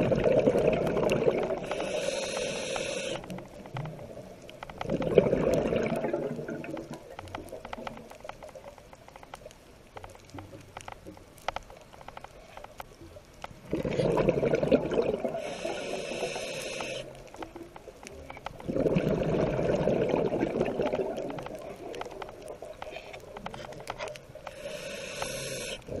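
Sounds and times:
exhaled bubbles underwater: 0:00.0 - 0:08.1, 0:13.6 - 0:17.1, 0:18.2 - 0:25.0
faint crackle of clicks: 0:00.0 - 0:26.0
regulator inhalation hiss: 0:01.5 - 0:03.5, 0:15.3 - 0:17.2, 0:24.4 - 0:26.0.

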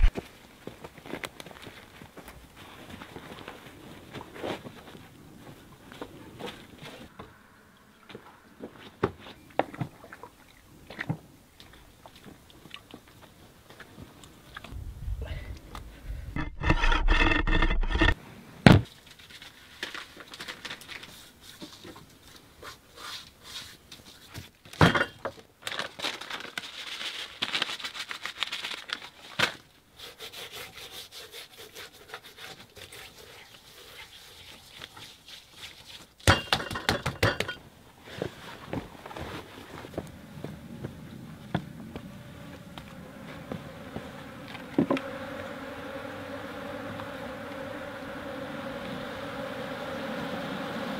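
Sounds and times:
honeybees buzzing: 0:39.9 - 0:50.9.

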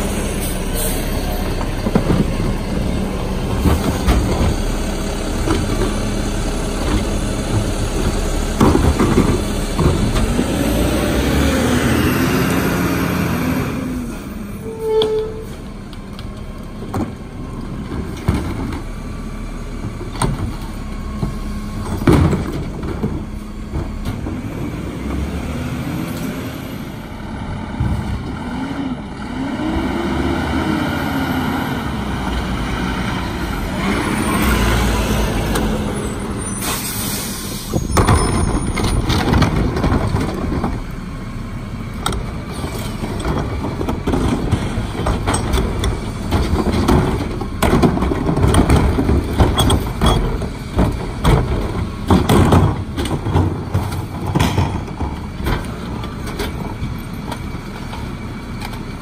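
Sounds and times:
garbage truck diesel engine: 0:00.0 - 0:59.0
knocks and clatter of carts tipping: 0:01.4 - 0:04.7, 0:06.8 - 0:10.7, 0:19.8 - 0:24.5, 0:37.8 - 0:40.9, 0:42.0 - 0:59.0
air brakes hissing: 0:36.4 - 0:38.0.

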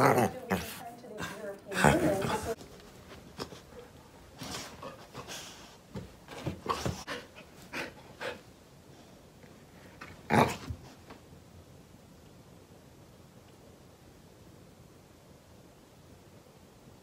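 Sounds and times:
dog breathy noises: 0:03.3 - 0:05.9, 0:06.6 - 0:08.5.

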